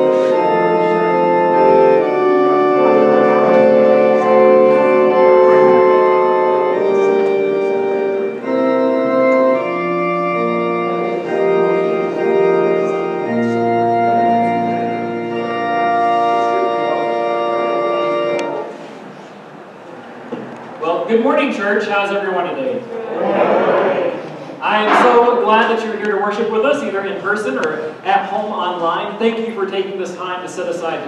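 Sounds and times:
organ playing slow chords: 0.0 - 19.6, 24.1 - 28.5
low organ bass note: 23.9 - 26.1.

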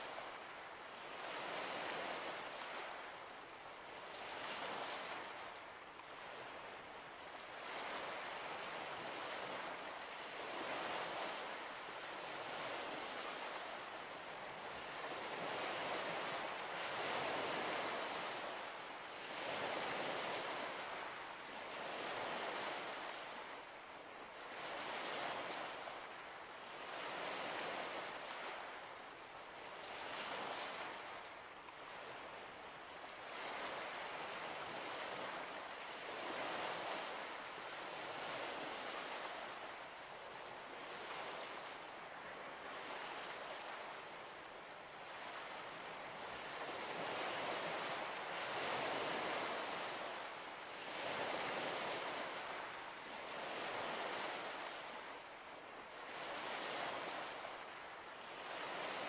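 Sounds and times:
waves washing on shore: 0.0 - 59.0.

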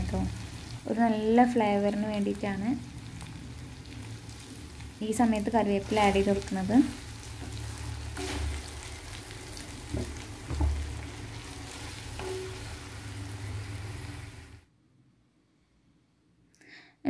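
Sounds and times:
clams sizzling in a pan: 0.0 - 14.6
wooden spatula scraping pan: 7.2 - 13.5.

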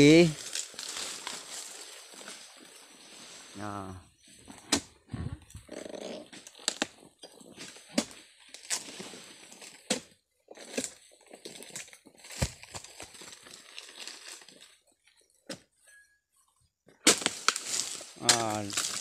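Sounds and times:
sickle cracking palm fronds: 0.0 - 2.7, 7.6 - 14.8, 17.0 - 19.0.

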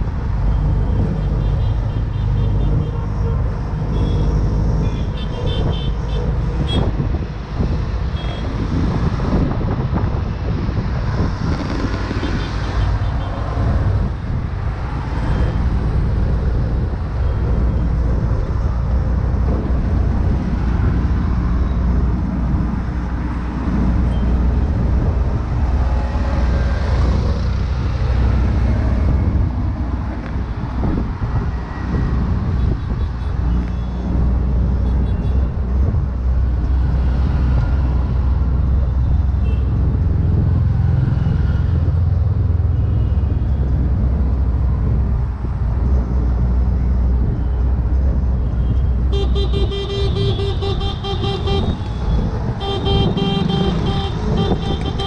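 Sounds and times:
road and traffic noise: 0.0 - 55.0.

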